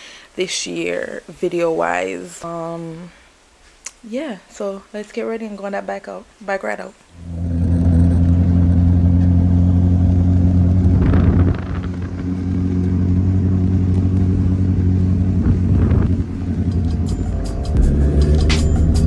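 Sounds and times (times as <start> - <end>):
motorcycle engine running: 7.2 - 19.0
rush of noise: 9.9 - 13.6, 14.2 - 18.3.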